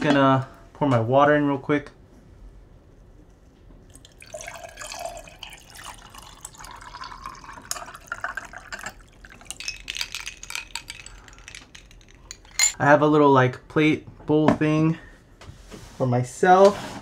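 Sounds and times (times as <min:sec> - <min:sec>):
water pouring into a mug: 0:03.9 - 0:11.4.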